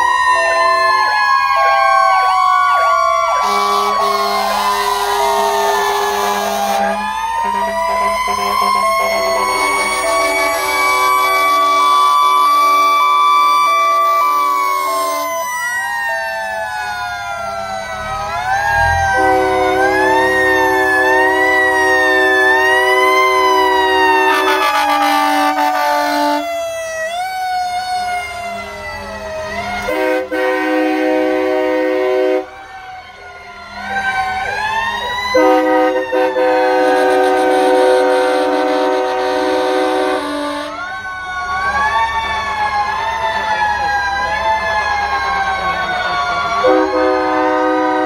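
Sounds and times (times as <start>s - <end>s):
fire engine sirens wailing: 0.0s - 48.0s
fire truck air horn blasts: 0.4s - 1.8s, 3.4s - 15.4s, 18.8s - 26.5s, 29.8s - 32.6s, 35.3s - 40.9s, 46.6s - 48.0s.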